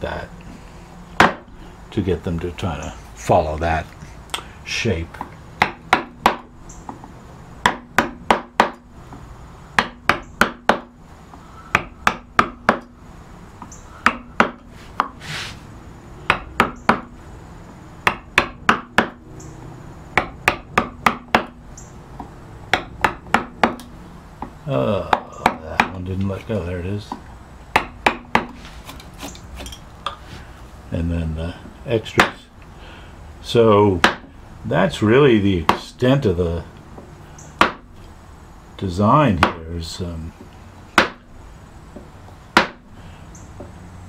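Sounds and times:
mallet tapping gouge into wood: 1.2s - 1.5s, 5.2s - 7.0s, 7.6s - 8.9s, 9.8s - 10.9s, 11.7s - 13.0s, 14.0s - 15.2s, 16.3s - 17.1s, 18.0s - 19.2s, 20.1s - 21.6s, 22.2s - 26.1s, 27.1s - 29.0s, 31.6s - 32.4s, 34.0s - 34.3s, 35.6s - 35.9s, 37.0s - 37.8s, 39.4s - 39.6s, 41.0s - 41.2s, 42.0s - 42.8s.

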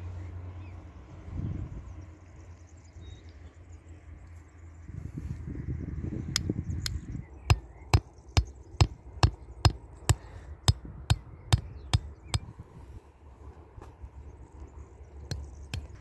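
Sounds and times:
hammer tapping steel stake: 6.4s - 12.5s, 15.2s - 16.0s.

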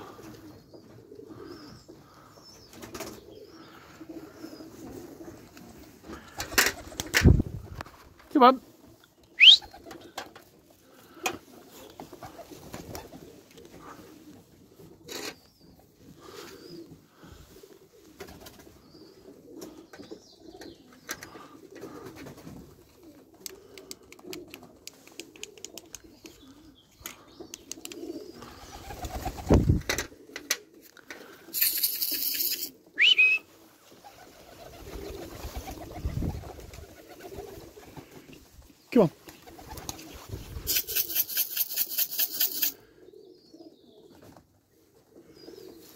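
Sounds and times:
pigeons cooing: 0.0s - 7.9s, 8.9s - 45.9s
short rising whistle: 9.4s - 9.6s, 33.0s - 33.5s.

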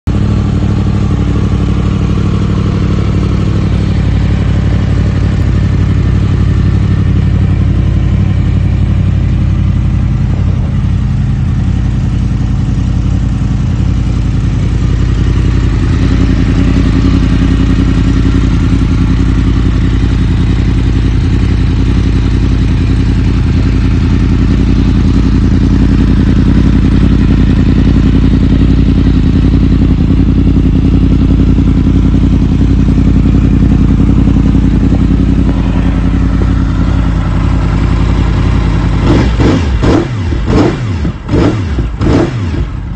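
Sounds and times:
motorcycle engine idling: 0.0s - 42.9s.

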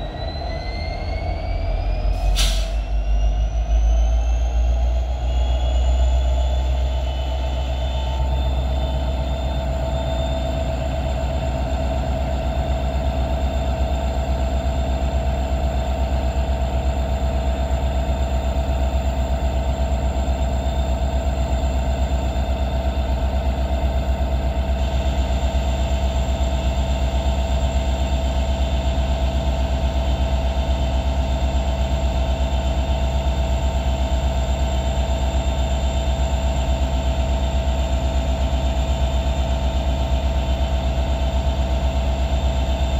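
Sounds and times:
diesel locomotive engine idling: 0.0s - 42.9s.

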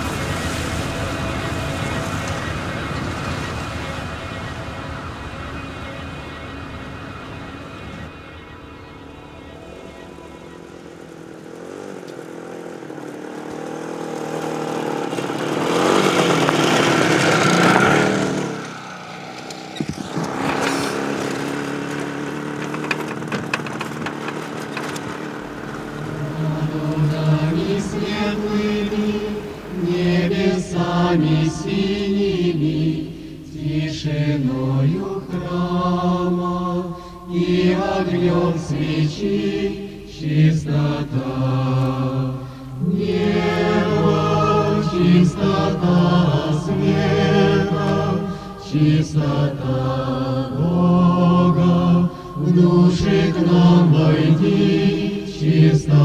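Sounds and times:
choir chanting a slow hymn: 0.0s - 12.9s, 14.1s - 23.3s, 25.0s - 56.0s
rushing noise: 0.0s - 56.0s
low musical bed: 25.3s - 56.0s.

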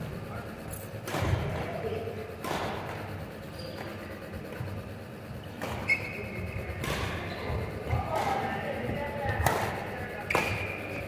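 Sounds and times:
racket striking shuttlecock: 1.0s - 1.7s, 2.4s - 3.1s, 5.6s - 5.9s, 6.8s - 7.2s, 7.9s - 8.5s, 9.3s - 10.9s.

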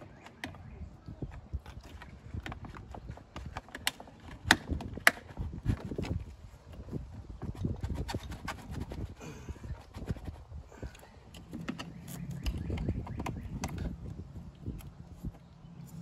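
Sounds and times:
hard plastic knocks and clicks: 11.3s - 14.0s.

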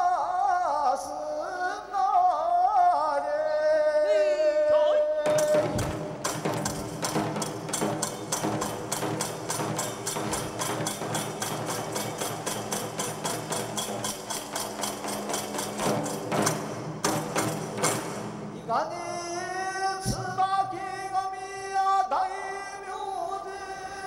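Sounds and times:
rapid percussion strikes: 5.2s - 18.8s.

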